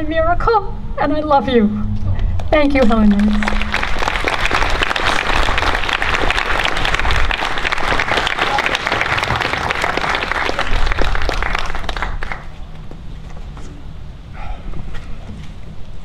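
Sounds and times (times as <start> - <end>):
audience applauding: 2.8 - 12.6.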